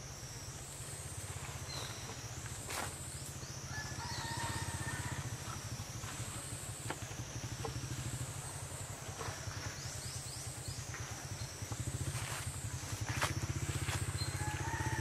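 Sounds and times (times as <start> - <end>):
buzzing insect drone: 0.0 - 15.0
small engine running: 3.6 - 15.0.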